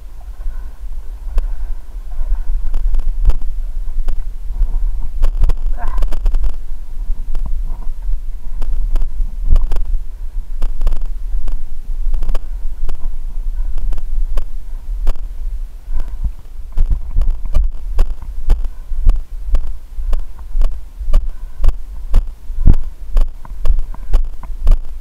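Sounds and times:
steady low rumble: 0.0s - 25.0s.

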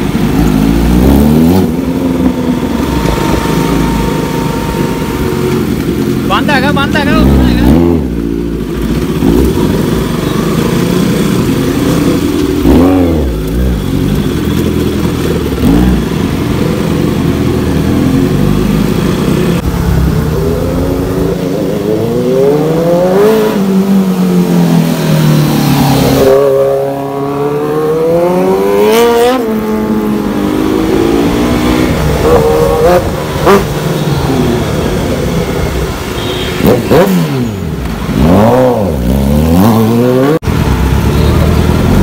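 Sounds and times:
motorcycle engine revving: 0.0s - 42.0s.

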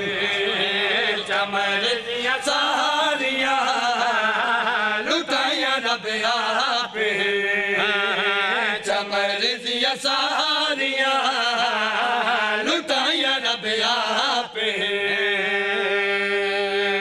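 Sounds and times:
man chanting devotional song: 0.0s - 17.0s.

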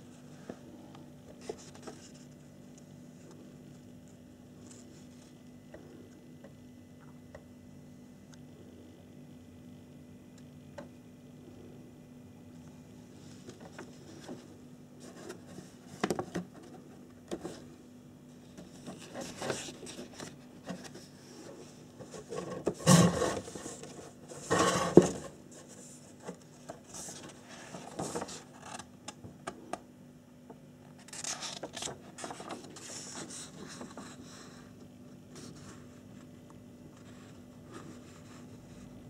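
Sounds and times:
paper booklet and box handled: 18.4s - 28.9s, 31.0s - 34.5s.

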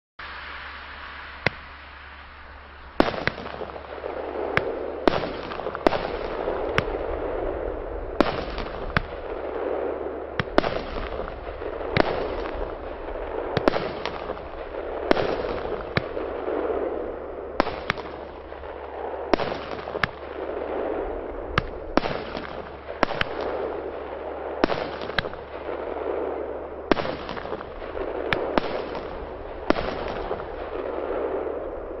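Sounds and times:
rushing hiss of fireworks: 0.2s - 32.0s
fireworks sharp pops: 1.4s - 1.7s, 3.0s - 7.2s, 8.2s - 16.9s, 17.6s - 23.7s, 24.6s - 26.2s, 26.9s - 31.5s.

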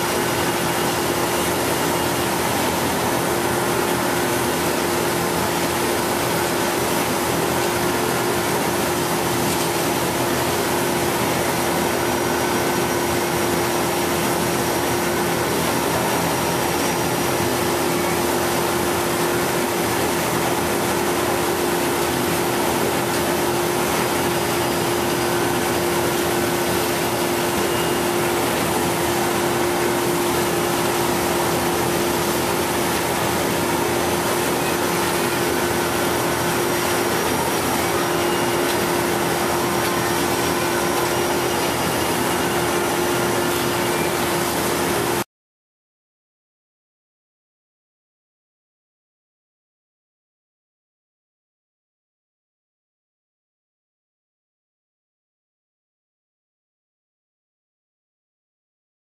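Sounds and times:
engine running steadily: 0.0s - 45.2s.

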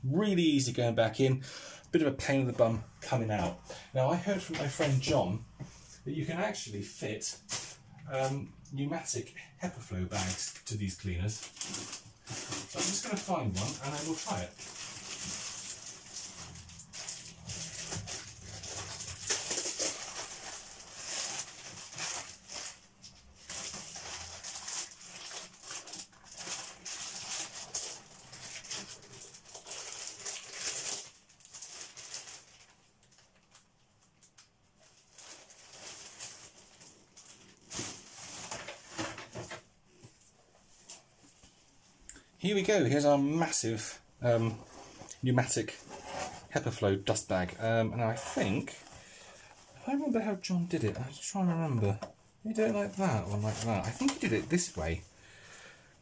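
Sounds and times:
rummaging rustling and knocks: 37.7s - 39.7s.

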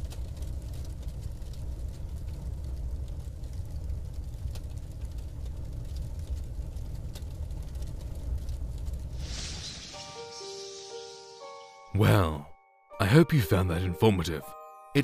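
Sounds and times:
rising hiss: 9.2s - 11.8s.

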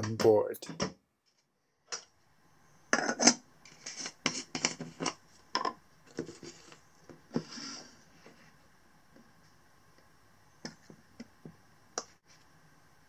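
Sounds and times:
spoon scraping coffee jar: 3.0s - 5.2s.

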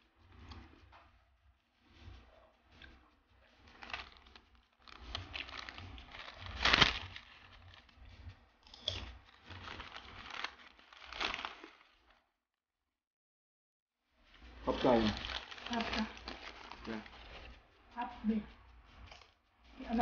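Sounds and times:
paper napkin crinkling: 3.7s - 8.0s, 9.0s - 12.1s, 14.6s - 17.6s.

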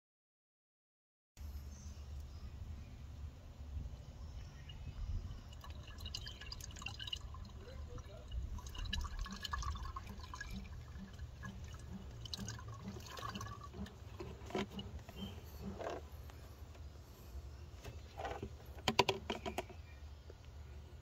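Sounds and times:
oil glugging through a funnel: 4.6s - 16.2s.

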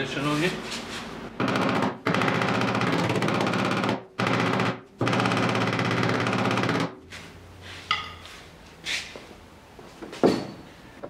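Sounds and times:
power tool hammering on metal: 1.4s - 7.0s.

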